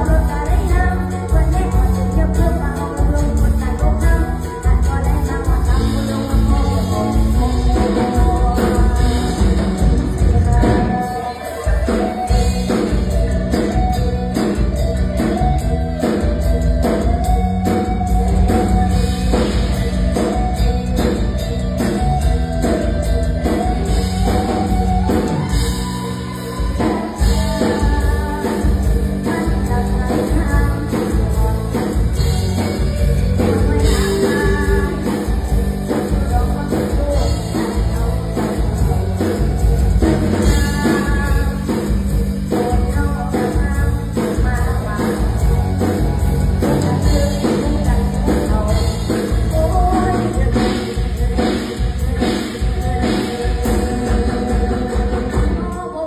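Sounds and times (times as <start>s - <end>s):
girl singing into microphone: 0.0s - 13.2s, 25.3s - 32.8s, 33.4s - 38.8s, 40.4s - 56.0s
band with drum beat: 0.0s - 56.0s.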